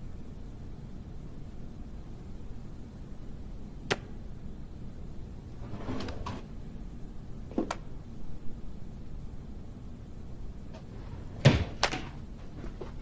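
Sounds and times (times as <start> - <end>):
desk drawer scraping open: 5.6 - 6.5, 10.8 - 12.2.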